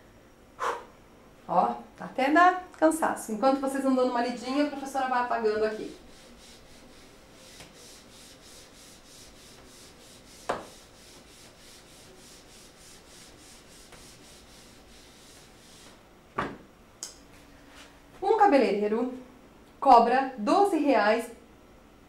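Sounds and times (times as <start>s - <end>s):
eraser wiping a whiteboard: 4.5s - 16.0s.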